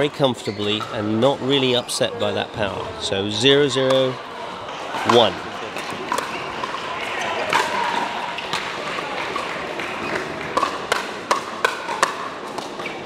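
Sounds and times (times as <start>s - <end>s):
paddles hitting pickleball: 5.0s - 13.0s.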